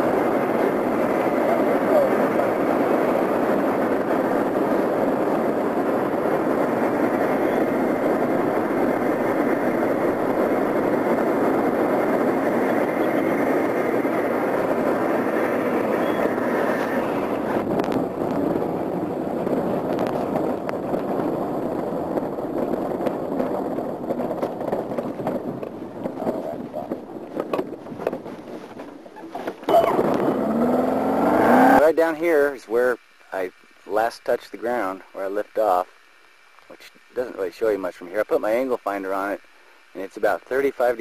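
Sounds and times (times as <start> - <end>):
wind rushing past microphone: 0.0 - 32.5
wheels knocking over rough ground: 22.6 - 30.3.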